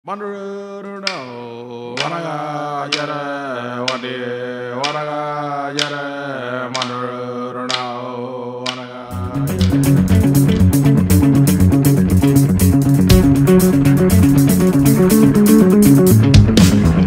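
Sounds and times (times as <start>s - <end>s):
droning chant: 0.1s - 10.7s
sharp tap keeping time: 1.0s - 11.2s.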